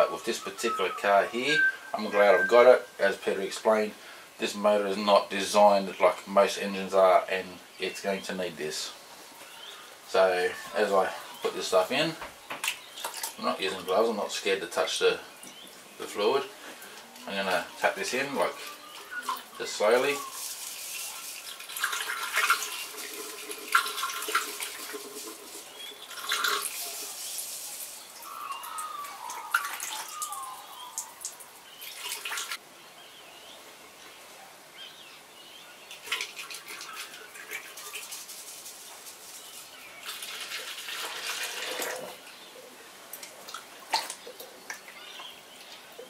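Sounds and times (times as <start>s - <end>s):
liquid trickling: 12.6s - 14.0s, 18.9s - 32.6s, 35.8s - 42.5s.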